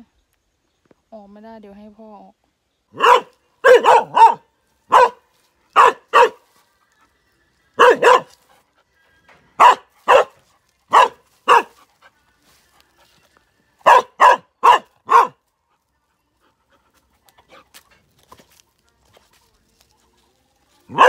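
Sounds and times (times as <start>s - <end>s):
dog barking: 2.9s - 6.4s, 7.8s - 8.4s, 9.6s - 11.8s, 13.8s - 15.4s.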